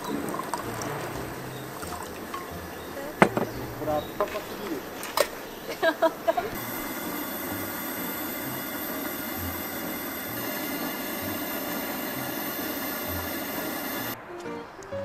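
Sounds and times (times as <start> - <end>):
steady hissing rush: 3.8 - 14.2.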